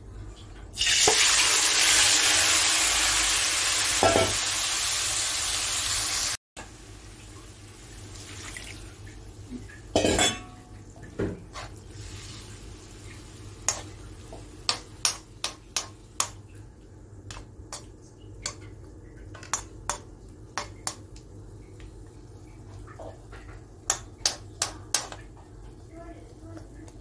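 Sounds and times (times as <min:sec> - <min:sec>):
spoon clinking against metal pan: 0:10.0 - 0:10.6.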